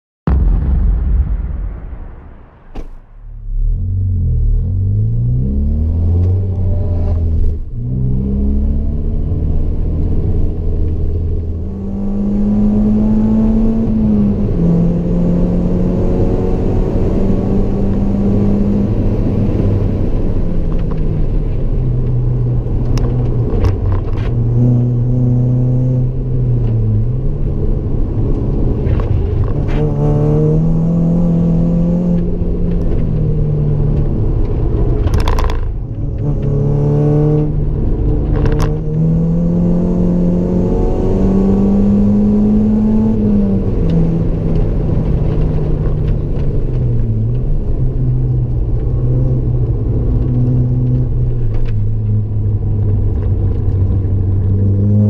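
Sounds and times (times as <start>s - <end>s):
car engine revving from inside cabin: 3.6s - 19.6s, 24.4s - 27.1s, 29.6s - 33.7s, 35.9s - 46.0s, 47.6s - 55.0s.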